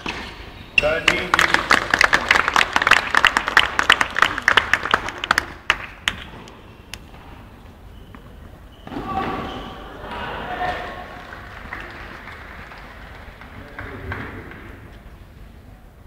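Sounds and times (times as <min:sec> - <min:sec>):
crowd applauding: 0:01.0 - 0:06.3, 0:10.8 - 0:14.8.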